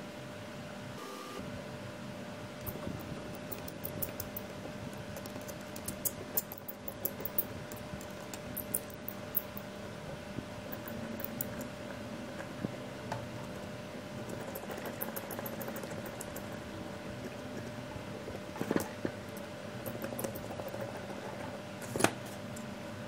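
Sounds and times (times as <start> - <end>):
steady hum: 0.0 - 23.0
screwdriver scraping and ticking: 2.6 - 9.6.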